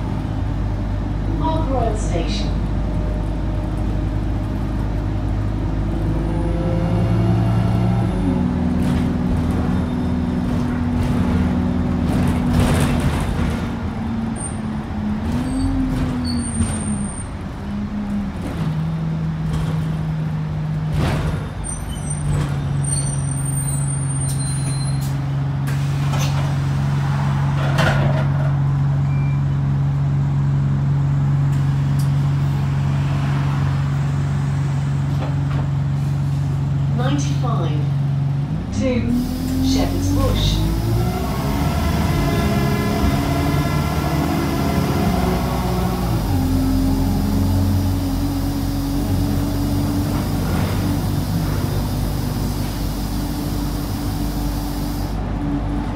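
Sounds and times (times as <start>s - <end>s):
bus engine humming: 0.0s - 55.9s.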